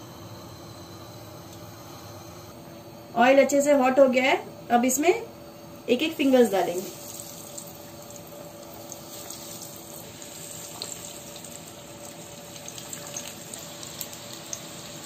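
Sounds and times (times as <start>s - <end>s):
food deep-frying in oil: 6.2s - 15.0s
oil crackling and popping: 7.0s - 15.0s.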